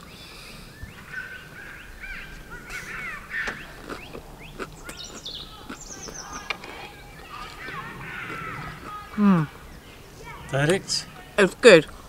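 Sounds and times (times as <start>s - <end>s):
birds chirping and calling: 0.0s - 12.0s.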